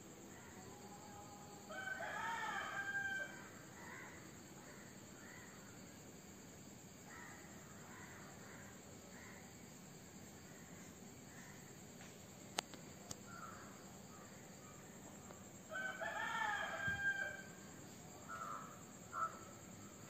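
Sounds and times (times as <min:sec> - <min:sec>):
crickets chirring: 0:00.0 - 0:20.0
rooster crowing: 0:01.7 - 0:03.5, 0:15.7 - 0:17.6.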